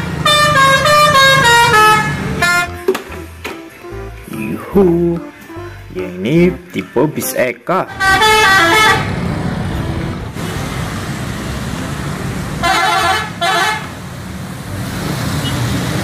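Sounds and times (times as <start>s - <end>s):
bus horn blasts: 0.0s - 4.1s, 7.9s - 9.2s, 12.6s - 14.0s
engine running: 0.0s - 6.9s, 7.9s - 16.0s
road traffic: 0.0s - 16.0s.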